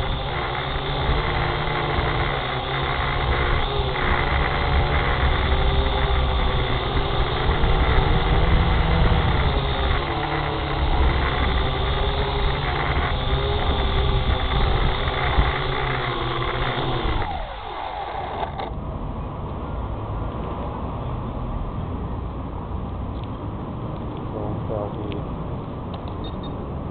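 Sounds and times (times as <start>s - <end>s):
drone propellers humming: 0.0s - 18.8s
rotors spinning down whine: 0.0s - 18.8s.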